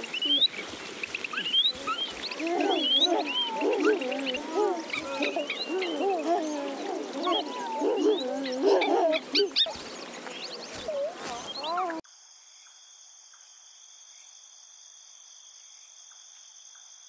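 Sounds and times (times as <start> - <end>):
animal calls: 0.0 - 10.0, 10.7 - 12.0
birds chirping: 0.0 - 12.0.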